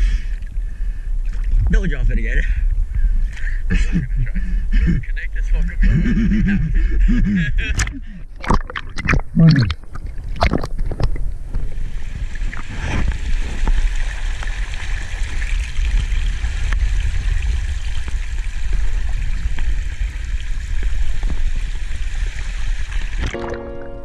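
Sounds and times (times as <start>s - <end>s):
water sloshing against camera: 7.7s - 13.9s.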